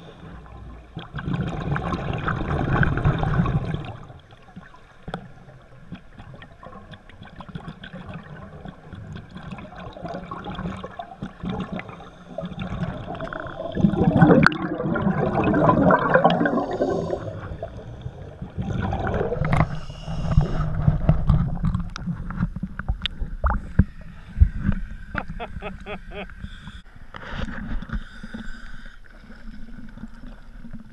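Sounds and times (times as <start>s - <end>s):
rush of bubbles: 0.0s - 4.2s, 6.1s - 22.0s
underwater bubbling and gurgling: 0.0s - 30.9s.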